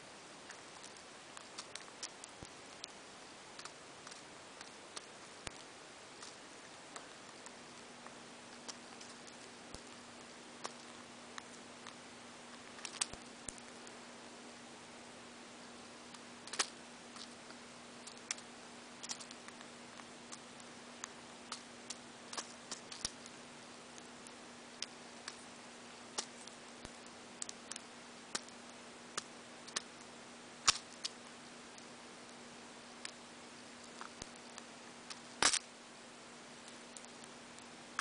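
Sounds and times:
beak cracking seeds: 0:00.4 - 0:06.4, 0:10.6 - 0:14.0, 0:16.1 - 0:23.4, 0:30.6 - 0:31.2, 0:33.8 - 0:35.7.

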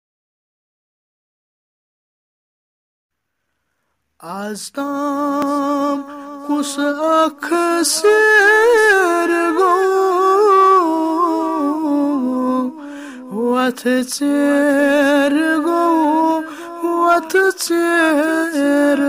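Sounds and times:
man singing unaccompanied: 0:04.2 - 0:19.0.

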